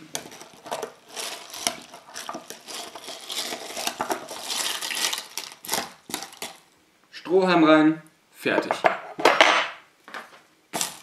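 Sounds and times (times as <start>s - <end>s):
spoon stirring crushed ice: 0.1s - 6.6s
ice crunching: 0.3s - 6.6s.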